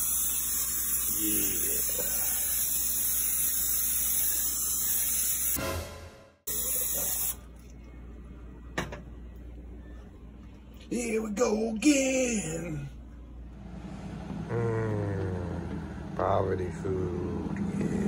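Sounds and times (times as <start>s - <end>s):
aerosol spray can hissing: 0.0s - 5.6s.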